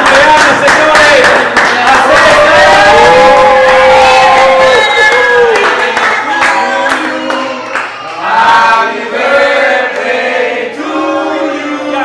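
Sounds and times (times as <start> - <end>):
group of voices singing: 6.0 - 12.0.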